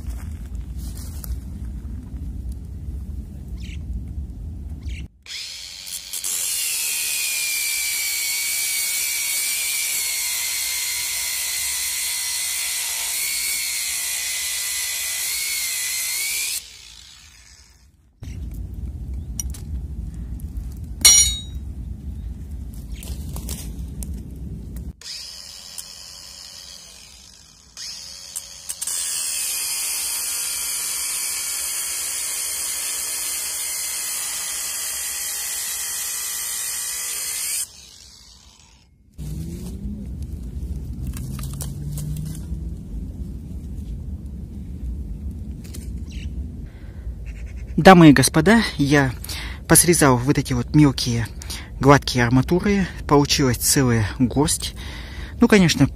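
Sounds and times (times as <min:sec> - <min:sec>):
low rumble: 0:00.0 - 0:05.1, 0:18.0 - 0:25.0, 0:39.0 - 0:47.3
angle grinder cutting steel: 0:05.3 - 0:17.9, 0:21.1 - 0:21.5, 0:25.0 - 0:39.4.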